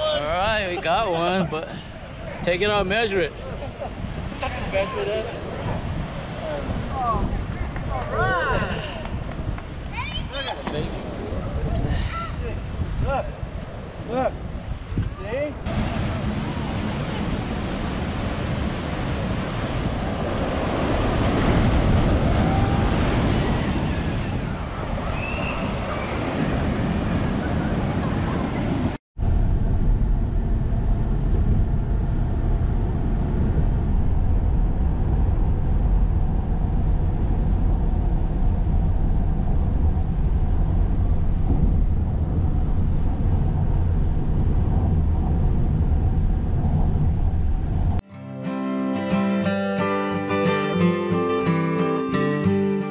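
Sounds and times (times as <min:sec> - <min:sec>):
surf breaking against rocks: 0:15.7 - 0:29.0.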